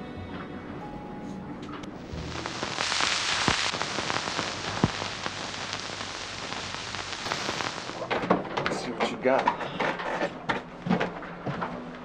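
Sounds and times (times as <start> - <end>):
rain-like hiss with crackles: 1.9 - 8.8.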